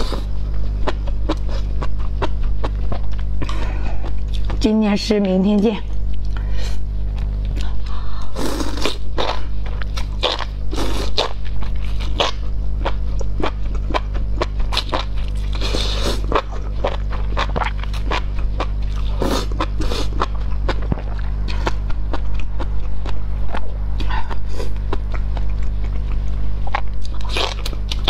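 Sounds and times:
crunchy chewing: 0:00.0 - 0:04.6, 0:07.0 - 0:28.0
slurping noodles: 0:08.3 - 0:09.0.

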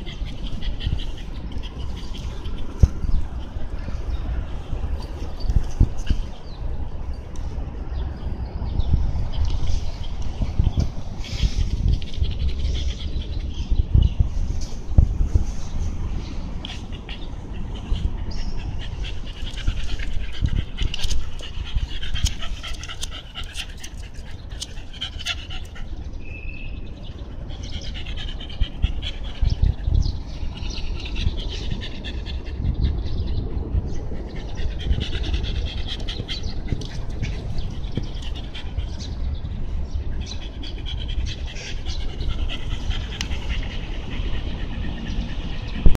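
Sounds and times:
steady low rumble: 0:00.0 - 0:45.9
dog panting: 0:16.6 - 0:26.0, 0:27.3 - 0:45.9.

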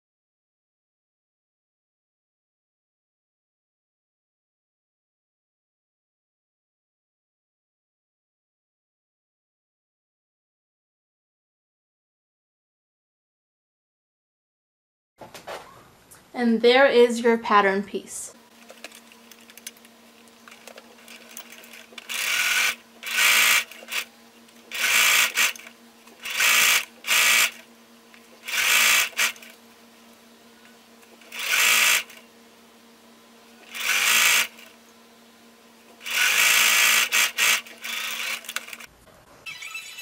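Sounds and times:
faint steady hum: 0:15.6 - 0:40.0
sewing machine stitching: 0:21.0 - 0:27.7, 0:28.4 - 0:29.6, 0:31.1 - 0:32.2, 0:33.6 - 0:34.8, 0:36.0 - 0:38.9.

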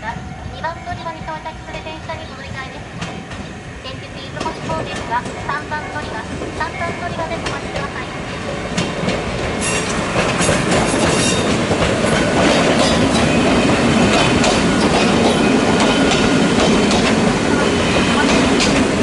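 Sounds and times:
electric train passing: 0:00.0 - 0:19.0
train wheel squeal: 0:09.6 - 0:11.6.

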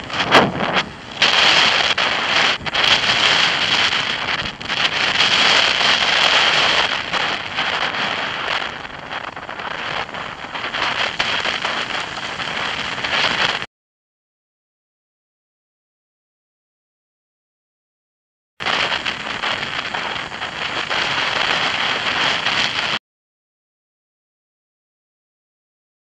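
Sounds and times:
tyres hissing on wet road: 0:00.0 - 0:13.7, 0:18.7 - 0:23.0
wind rushing over microphone: 0:00.0 - 0:13.7, 0:18.6 - 0:23.0.

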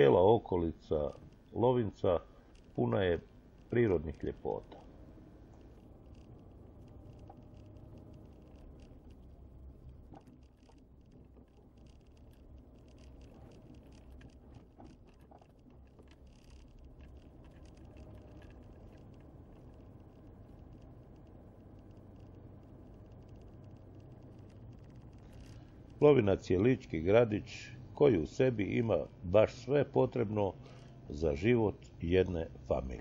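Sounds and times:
car driving slowly from inside: 0:00.0 - 0:33.0
small clicks and rattles: 0:00.9 - 0:01.6, 0:02.2 - 0:26.9.

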